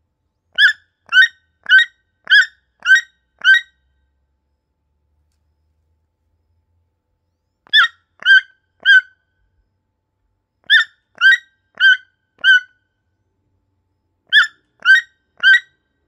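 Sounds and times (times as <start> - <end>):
toucan calling: 0.5 - 3.8, 7.6 - 9.2, 10.6 - 12.8, 14.3 - 15.8.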